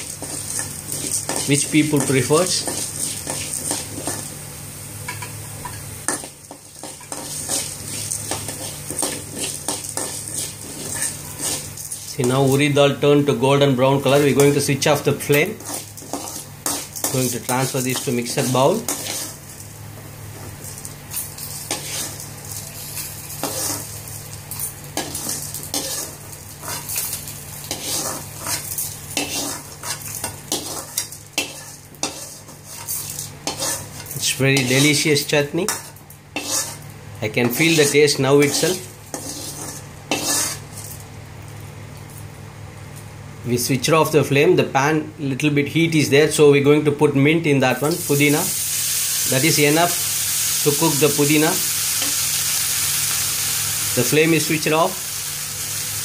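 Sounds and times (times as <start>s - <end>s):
food sizzling: 0.0s - 43.2s, 47.7s - 56.0s
metal ladle scraping a pan: 6.8s - 12.0s, 15.6s - 17.1s, 18.4s - 19.4s, 21.6s - 22.2s, 23.4s - 23.9s, 25.0s - 35.0s, 35.7s - 36.8s, 37.6s - 40.9s.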